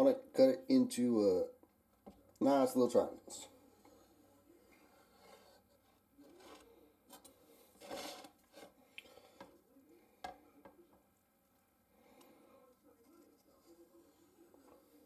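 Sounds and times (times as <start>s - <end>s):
knife scraping through tortilla: 7.8s - 9.4s.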